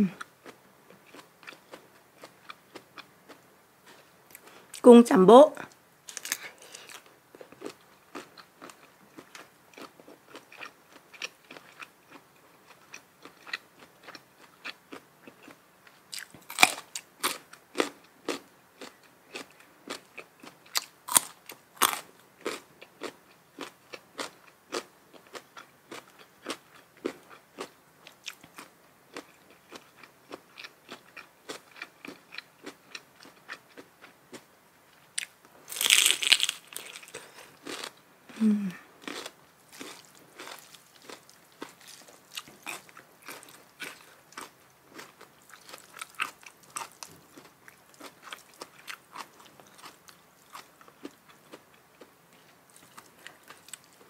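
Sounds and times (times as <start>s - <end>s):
crunchy bites: 6.1s - 12.2s, 12.9s - 34.4s, 35.2s - 51.2s
wet chewing: 39.1s - 51.2s.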